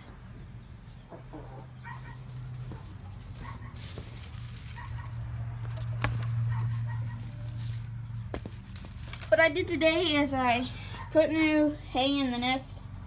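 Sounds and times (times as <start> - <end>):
chickens calling softly: 0.0 - 7.8
rustle in hay: 1.9 - 9.4.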